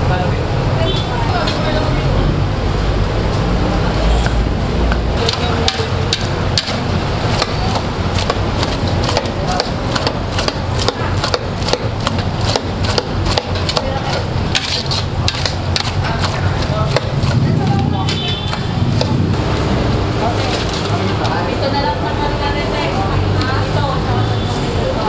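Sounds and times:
metal spoon scraping pot: 5.2 - 17.3.

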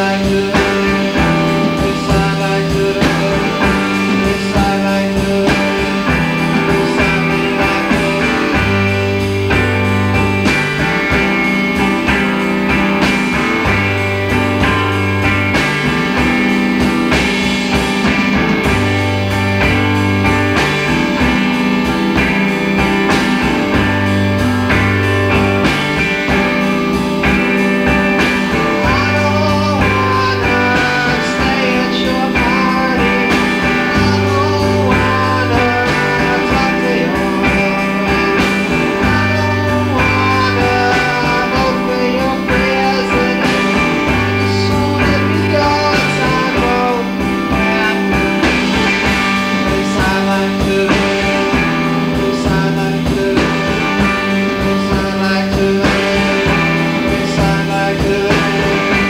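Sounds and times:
man singing: 0.0 - 9.5, 22.1 - 59.0
bass guitar: 0.0 - 59.0
drum beat: 0.0 - 59.0
electric guitar: 0.0 - 59.0.

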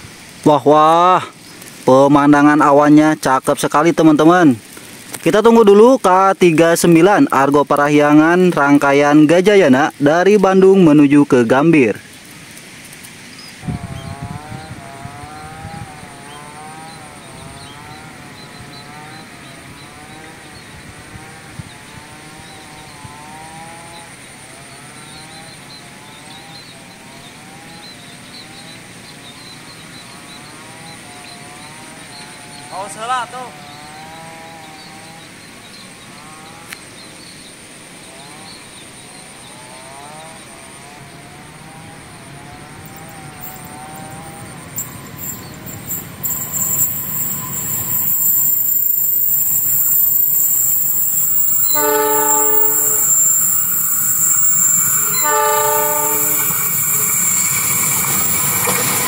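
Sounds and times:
outdoor background noise: 0.0 - 59.0
wind buffeting microphone: 13.5 - 23.6
distant engine droning: 13.6 - 59.0
faint wavering hum: 38.1 - 49.6
faint bird chirps: 42.9 - 59.0.

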